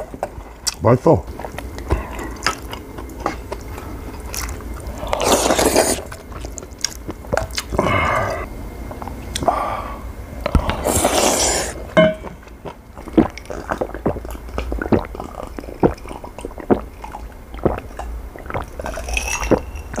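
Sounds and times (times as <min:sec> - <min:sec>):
gulping and swallowing: 0:00.0 - 0:09.5, 0:12.6 - 0:20.0
slurping and chewing: 0:00.0 - 0:09.6, 0:10.4 - 0:20.0.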